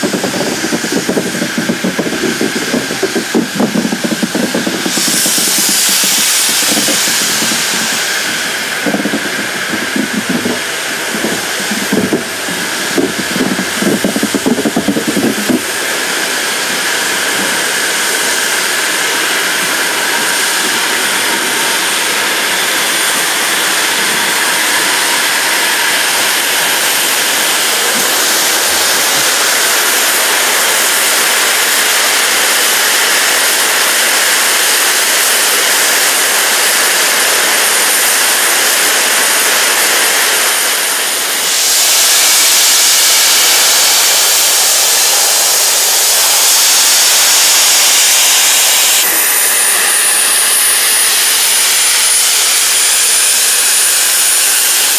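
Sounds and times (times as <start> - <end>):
steam hissing from locomotives: 0.0 - 54.9.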